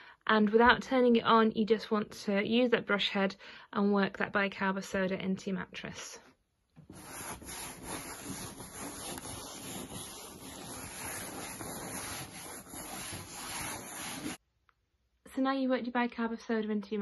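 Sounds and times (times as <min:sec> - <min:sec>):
brush bristles scrubbing fabric: 0:06.9 - 0:14.4.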